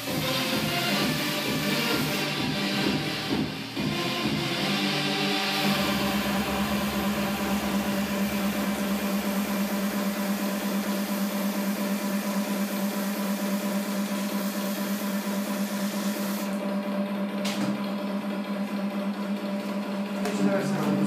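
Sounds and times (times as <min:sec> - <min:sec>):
tattoo machine buzzing: 0:05.9 - 0:16.6.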